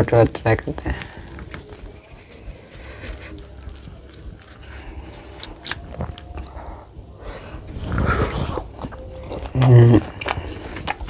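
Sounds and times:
fingers handling food: 0.9s - 11.0s
wet bite and chewing: 3.2s - 6.7s, 7.7s - 11.0s.

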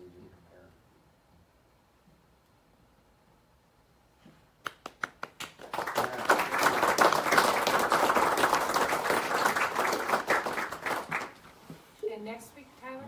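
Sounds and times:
audience applauding: 4.7s - 11.4s.

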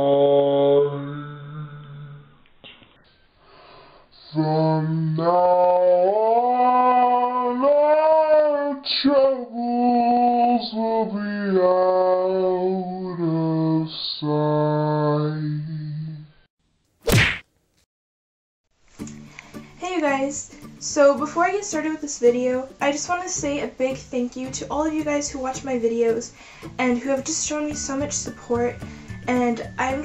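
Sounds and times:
woman singing unaccompanied: 4.3s - 16.3s, 19.8s - 30.0s.

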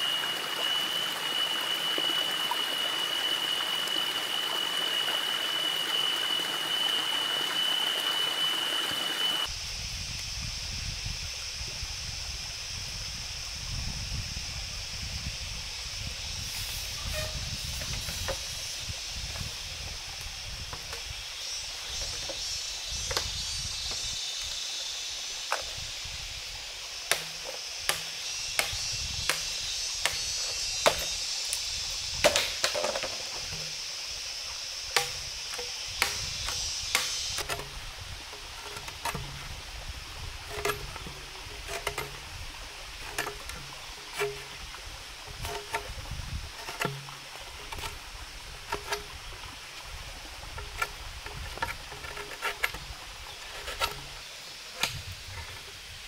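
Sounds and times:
high steady hiss: 0.0s - 56.0s
machete chopping bamboo: 27.1s - 31.2s, 32.2s - 33.8s, 34.9s - 37.7s, 54.8s - 55.0s.

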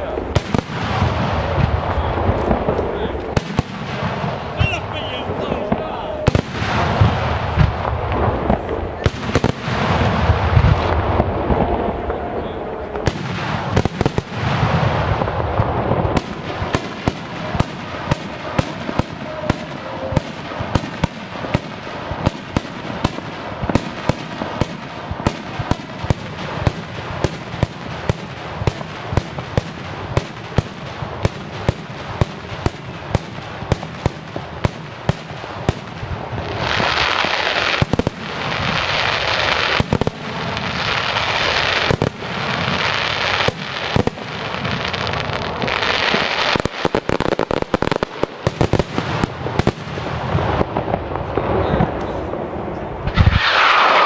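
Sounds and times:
rushing burst: 35.4s - 54.0s
fireworks shells bursting: 53.1s - 54.0s.

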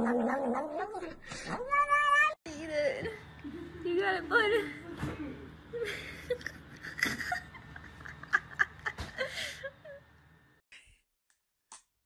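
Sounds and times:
breathy laughter: 5.8s - 10.0s.

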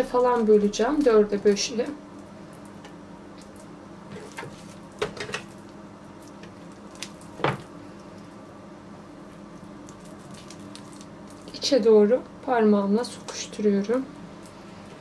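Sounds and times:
dough squishing by hand: 0.0s - 11.8s.

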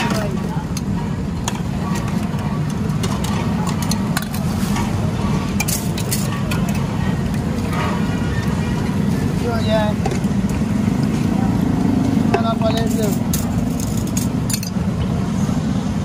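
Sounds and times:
utensils clicking and clinking: 0.0s - 9.2s, 12.0s - 15.0s
low rumble of traffic: 0.0s - 16.0s.

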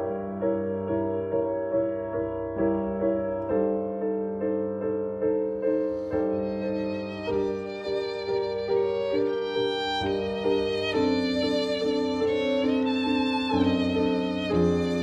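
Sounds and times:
piano repeated chords: 0.0s - 15.0s
violin: 5.6s - 15.0s.

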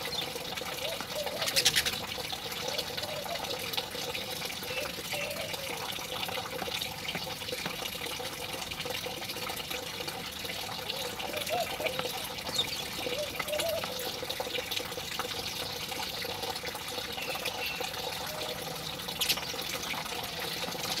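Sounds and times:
rush of running water: 0.0s - 21.0s
faint low wavering calls: 11.0s - 14.1s, 17.1s - 21.0s.

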